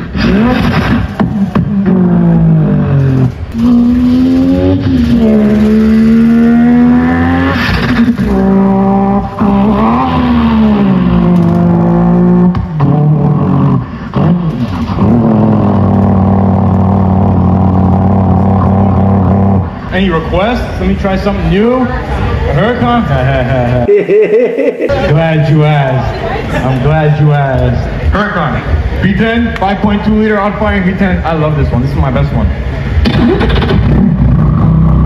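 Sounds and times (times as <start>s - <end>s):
man imitating car engine: 1.8s - 19.9s, 22.8s - 24.9s, 33.2s - 35.0s.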